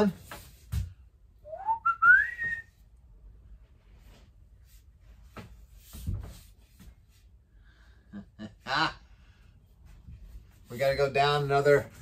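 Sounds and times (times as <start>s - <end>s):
person whistling rising note: 1.4s - 2.8s.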